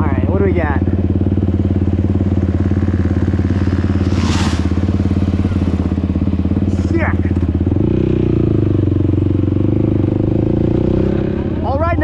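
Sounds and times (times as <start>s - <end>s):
atv engine idling: 0.0s - 12.0s
brief rushing noise: 3.9s - 5.6s.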